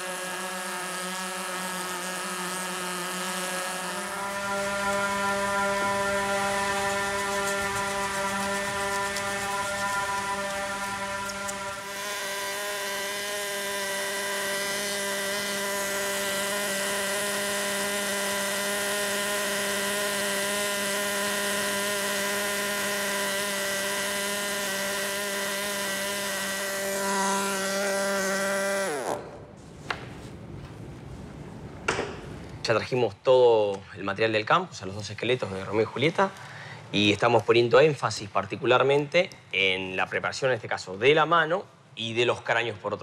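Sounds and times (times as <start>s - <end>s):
power tool motor whine: 0.0s - 29.5s.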